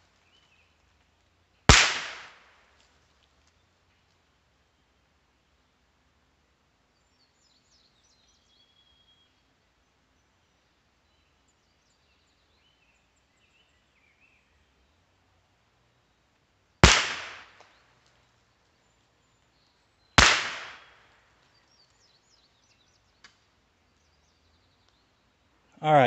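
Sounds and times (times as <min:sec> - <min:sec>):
faint birdsong: 0:00.0 - 0:01.7, 0:02.7 - 0:26.0
rifle shots with echo: 0:01.7 - 0:02.4, 0:16.8 - 0:17.6, 0:20.2 - 0:21.0.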